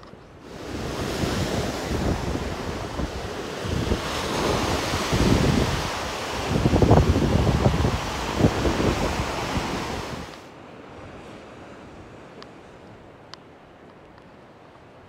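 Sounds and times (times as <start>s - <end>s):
wind buffeting microphone: 0.3s - 10.4s
surf breaking on rocks: 0.4s - 10.5s.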